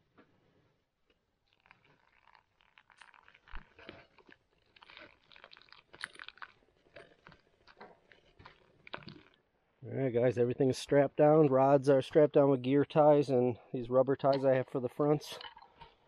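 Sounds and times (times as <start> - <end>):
faint crunching and rustling: 0.1 - 9.4.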